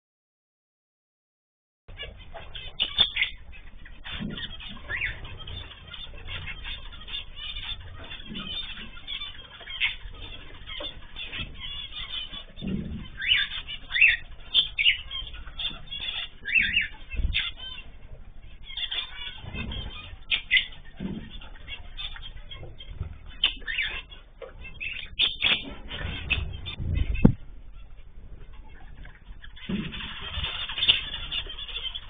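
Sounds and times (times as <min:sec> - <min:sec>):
cage birds chirping: 0:01.9 - 0:32.0
low thuds: 0:25.9 - 0:27.7.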